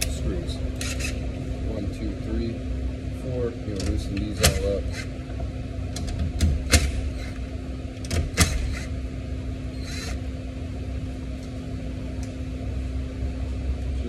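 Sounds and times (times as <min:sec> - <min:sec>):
steady low hum: 0:00.0 - 0:14.0
cordless drill running: 0:09.8 - 0:10.2.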